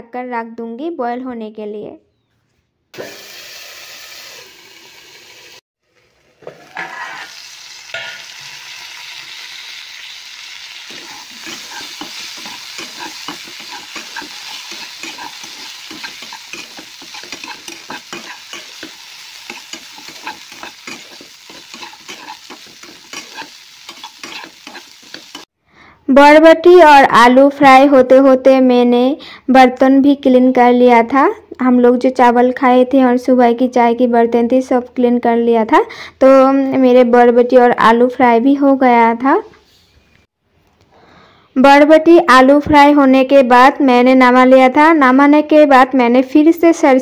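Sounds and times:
vegetables sizzling in oil: 3.0s - 25.5s
metal spatula scraping a pan: 6.4s - 8.7s, 10.8s - 25.5s.

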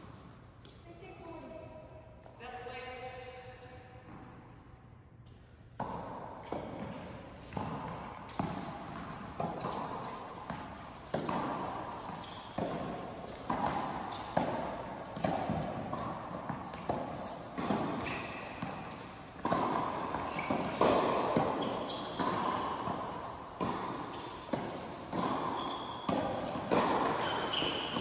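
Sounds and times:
tennis ball bouncing on court: 5.2s - 28.0s
tennis ball struck by rackets: 5.8s - 28.0s.

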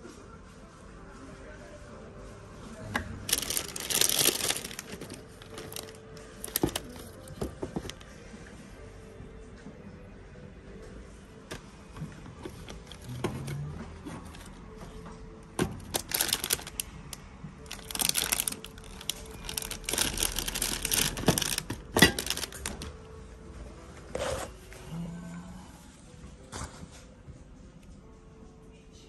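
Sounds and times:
groceries knocking together: 3.3s - 8.0s, 15.6s - 16.9s, 17.6s - 22.9s
plastic packaging crinkling: 3.3s - 8.0s, 15.8s - 17.0s, 17.6s - 22.9s.

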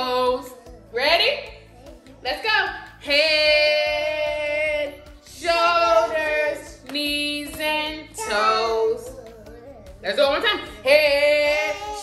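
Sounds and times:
woman and children singing: 3.0s - 9.2s.

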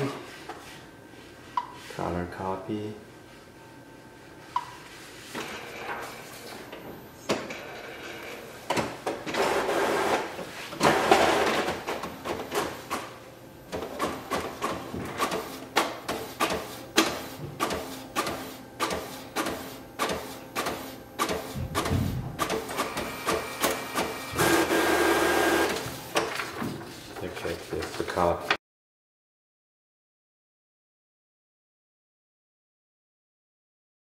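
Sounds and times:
printer mechanical whirring: 5.3s - 28.5s.

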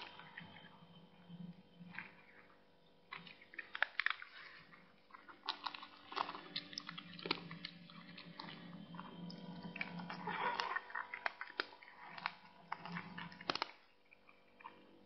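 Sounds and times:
cat chewing twine: 3.1s - 14.8s.

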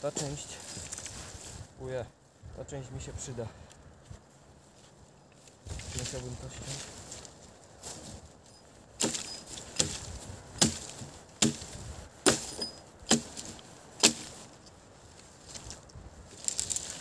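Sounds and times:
chopping blows on wooden branch: 9.0s - 14.4s.

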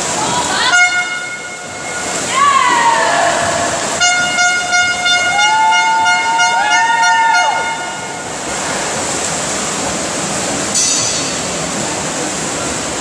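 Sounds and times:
echoing swimming hall noise: 0.0s - 13.0s
horn blowing long note: 0.7s - 2.2s, 3.8s - 8.4s
people yelling: 2.1s - 4.0s, 5.2s - 8.0s.

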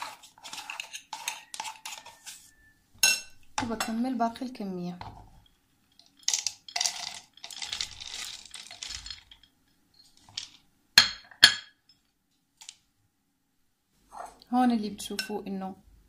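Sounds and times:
peanuts rattling into a jar: 5.9s - 10.6s.

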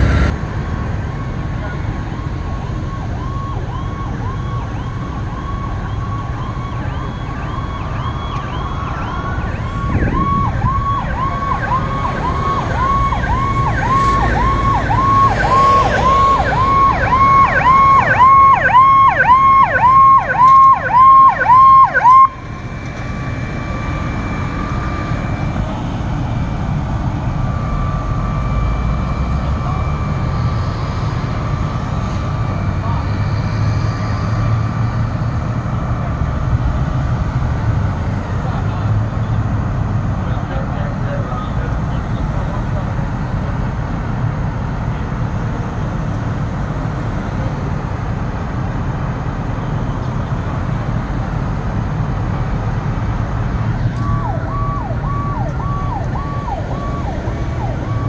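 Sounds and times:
rumble of engines and traffic: 0.0s - 58.0s
electronic siren yelping: 2.2s - 26.0s, 53.8s - 58.0s.

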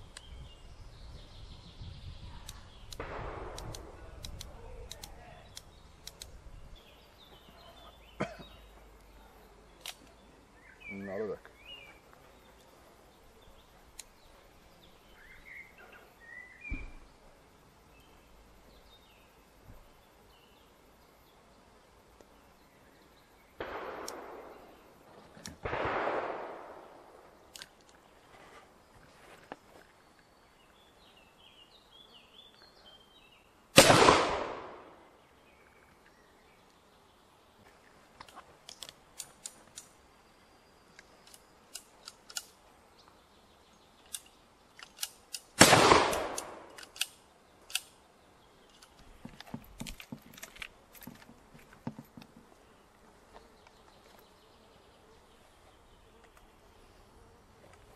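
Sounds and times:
sharp clicks: 2.4s - 6.4s, 9.8s - 10.2s, 23.6s - 24.6s, 27.5s - 28.0s, 38.2s - 40.0s, 40.9s - 42.6s, 44.0s - 48.0s
dull revolver blasts: 2.8s - 6.4s, 23.6s - 24.9s, 25.6s - 27.6s, 33.8s - 35.0s, 45.3s - 47.9s
loud revolver shots echoing: 3.0s - 4.4s, 23.6s - 24.9s, 25.6s - 27.2s, 33.8s - 35.0s, 45.6s - 47.2s.

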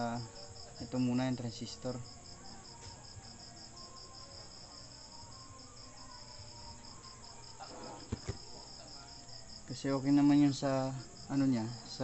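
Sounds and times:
cricket chirping: 0.0s - 12.0s.

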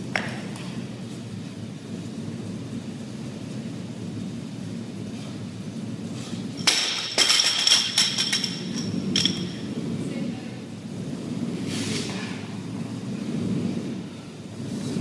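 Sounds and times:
low background hum: 0.0s - 15.0s
hard objects clinking: 6.6s - 9.6s.

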